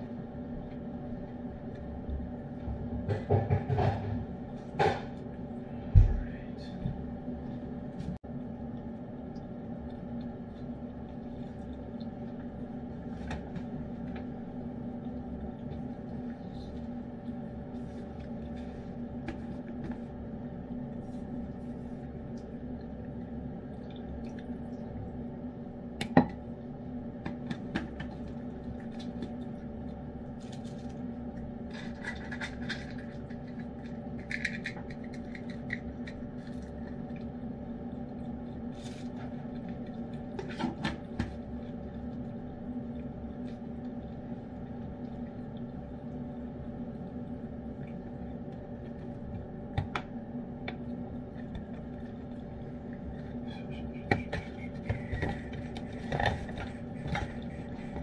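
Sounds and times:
low hum: 0.0s - 58.0s
cat chewing and licking: 27.6s - 40.4s.

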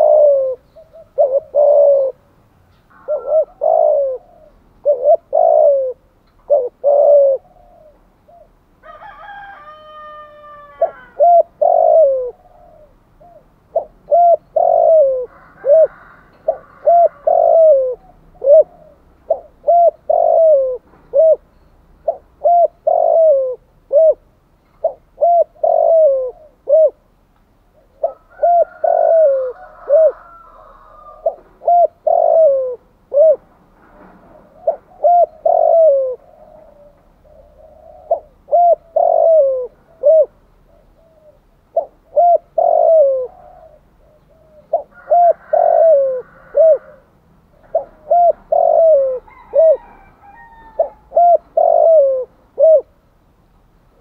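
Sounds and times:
dove cooing rapidly: 0.0s - 2.3s, 2.9s - 8.6s, 10.0s - 27.1s, 27.7s - 33.5s, 34.3s - 53.0s
higher bird call: 2.9s - 8.5s.

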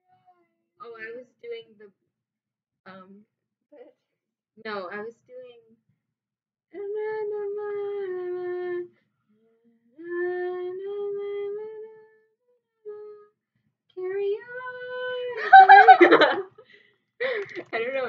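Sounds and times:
girl singing wordless tune: 6.8s - 9.0s, 10.0s - 12.3s, 12.9s - 13.4s, 14.0s - 15.4s.

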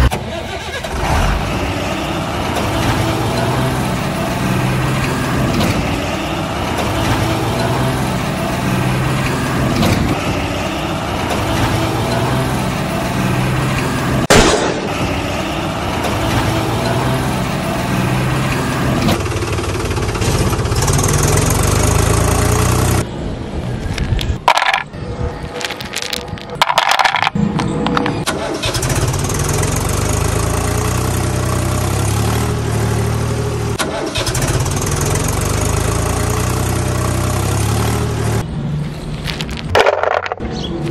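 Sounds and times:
truck engine running: 0.0s - 40.9s
sharp crack: 14.3s - 15.4s
toy bricks clattering: 23.8s - 28.3s, 39.1s - 40.9s.

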